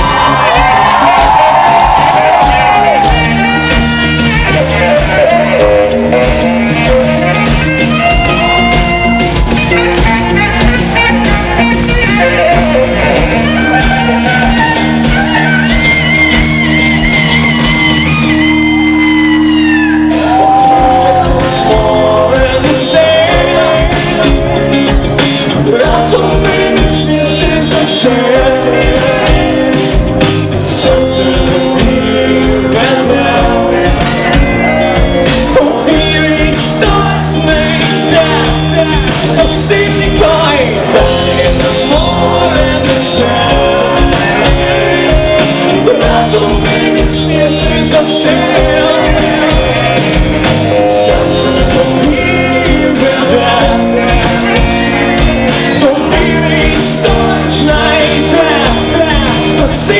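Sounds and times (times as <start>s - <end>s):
lead vocalist singing: 0.0s - 15.8s, 19.4s - 59.9s
live rock band playing: 0.0s - 59.9s
saxophone: 0.0s - 59.9s.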